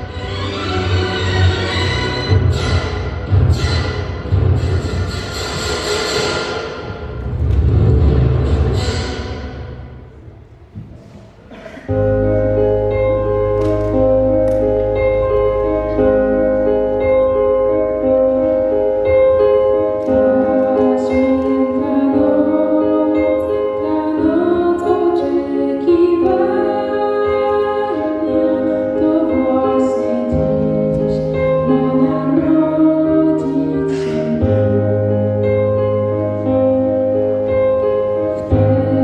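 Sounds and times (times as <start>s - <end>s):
held keyboard chords: 11.9s - 39.0s
woman singing: 20.1s - 35.8s, 38.4s - 39.0s.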